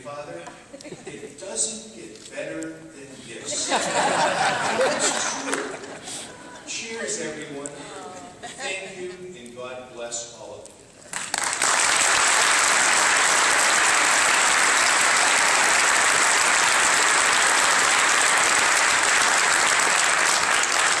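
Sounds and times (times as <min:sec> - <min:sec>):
audience applauding: 0:11.1 - 0:21.0.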